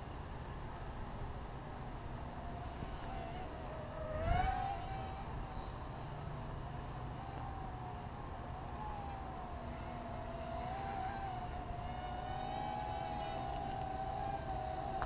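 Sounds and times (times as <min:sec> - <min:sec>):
quadcopter propellers whining: 0:02.2 - 0:15.0
wind rumble on microphone: 0:02.5 - 0:06.1.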